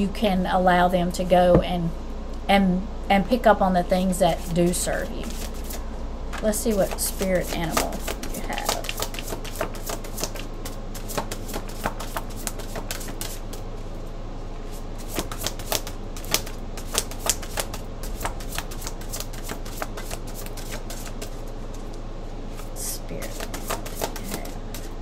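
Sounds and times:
low steady hum: 0:00.0 - 0:25.0
cards being shuffled: 0:05.2 - 0:13.6, 0:15.0 - 0:25.0.

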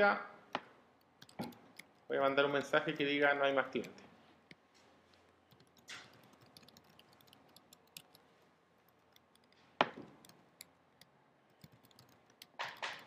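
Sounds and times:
keyboard typing: 0:01.0 - 0:02.9, 0:05.2 - 0:08.2, 0:08.8 - 0:13.0.

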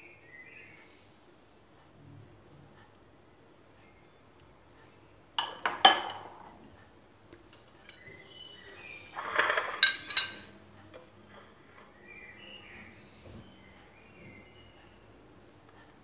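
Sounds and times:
metal tins clinking on countertop: 0:05.4 - 0:06.5, 0:09.4 - 0:10.5.

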